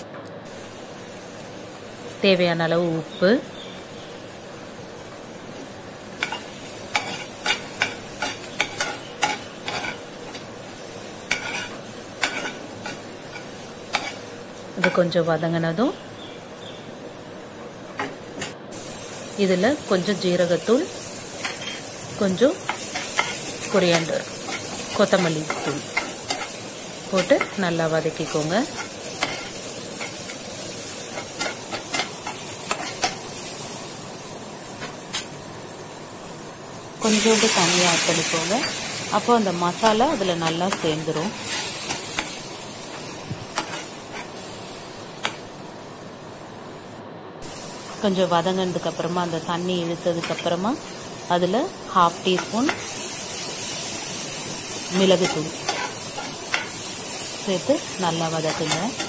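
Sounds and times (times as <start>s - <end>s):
faint sizzle of frying: 0.0s - 59.0s
metal spoon scraping a frying pan: 6.2s - 10.0s, 11.3s - 14.2s, 55.2s - 56.7s
spatula scraping a pan: 11.3s - 12.6s.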